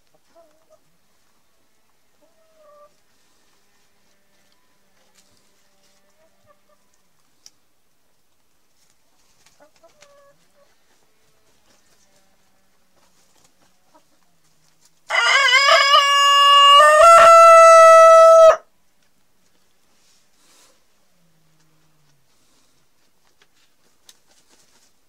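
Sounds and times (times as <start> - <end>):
faint hen clucks: 0.0 - 7.1, 9.5 - 14.8
rooster crowing: 15.1 - 18.7.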